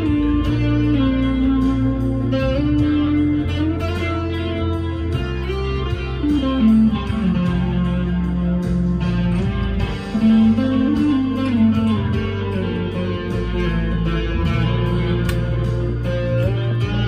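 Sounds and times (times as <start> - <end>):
overdriven electric guitar lead: 0.0 - 17.0.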